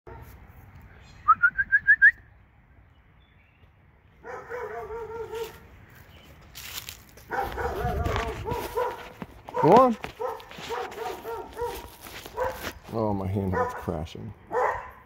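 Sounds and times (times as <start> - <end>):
short rising whistled notes: 1.2 - 2.3.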